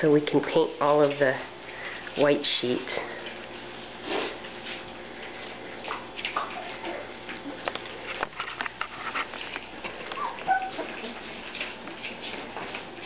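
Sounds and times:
puppy paws scrabbling on paper: 0:03.5 - 0:13.0
puppies squeaking: 0:10.0 - 0:11.4.

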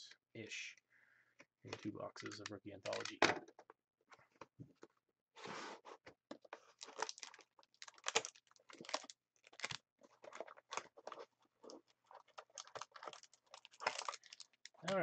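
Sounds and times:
packaging being opened by hand: 0:06.3 - 0:15.0.

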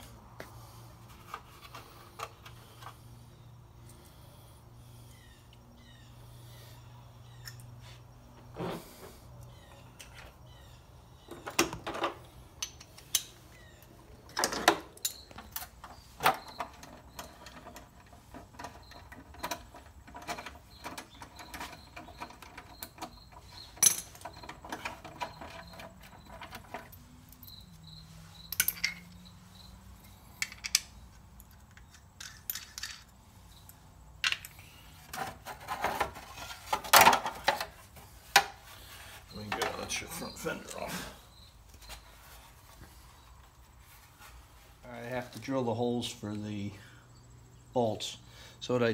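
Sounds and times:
clinks of hand tools and metal parts: 0:07.3 - 0:07.8, 0:11.3 - 0:43.1
metal parts rattling: 0:28.5 - 0:29.3, 0:30.3 - 0:33.2.

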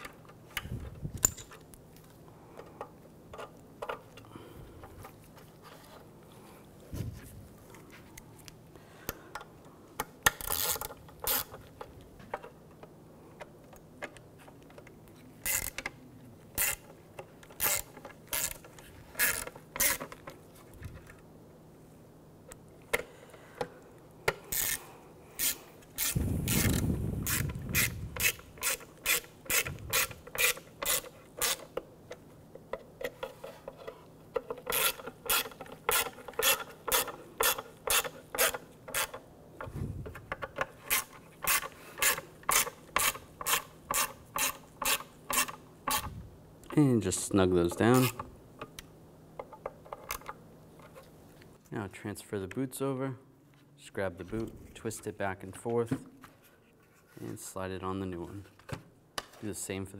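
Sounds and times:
hand ratchet clicking: 0:10.0 - 0:11.6, 0:15.4 - 0:15.9, 0:16.6 - 0:20.2, 0:25.4 - 0:31.8, 0:34.4 - 0:39.2.

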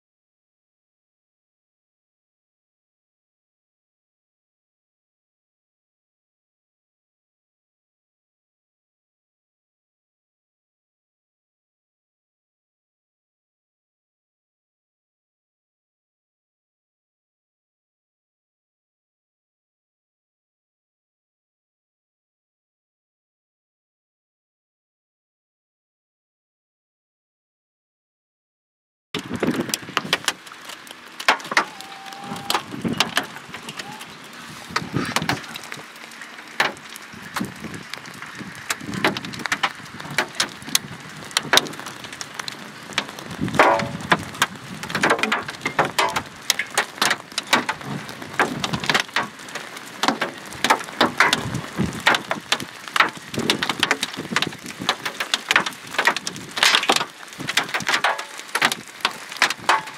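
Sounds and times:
hailstones striking: 0:29.2 - 0:59.9
steady hiss of rain: 0:29.2 - 0:59.9.

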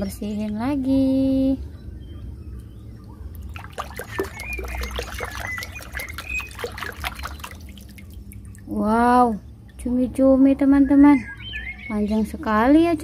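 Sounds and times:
faint high chirps: 0:01.8 - 0:07.8
water splashing and sloshing: 0:03.0 - 0:09.0.

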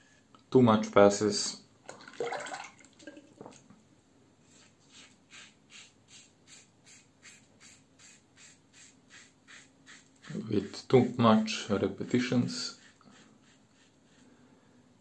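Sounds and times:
razor scraping stubble: 0:05.0 - 0:11.2.

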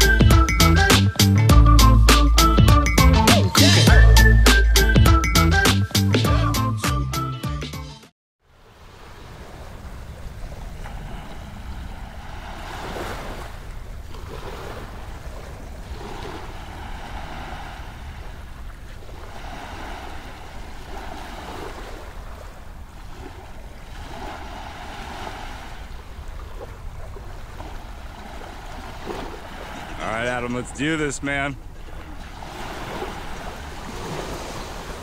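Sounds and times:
small waves washing on shore: 0:08.4 - 0:35.0
wind rumbling on microphone: 0:08.8 - 0:29.9.

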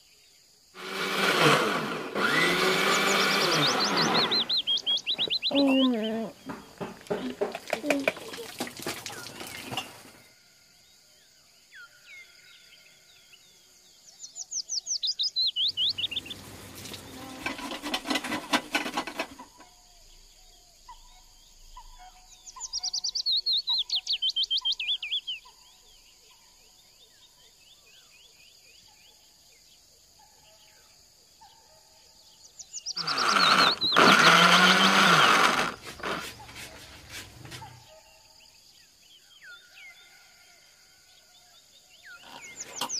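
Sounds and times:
electric blender running: 0:00.8 - 0:04.6, 0:33.0 - 0:36.7
birds singing in descending trills: 0:02.2 - 0:09.9, 0:11.7 - 0:17.2, 0:20.0 - 0:26.1, 0:32.5 - 0:36.6, 0:41.9 - 0:42.9
short repeated bird chirps: 0:02.8 - 0:06.3, 0:14.2 - 0:17.0, 0:21.8 - 0:25.5.

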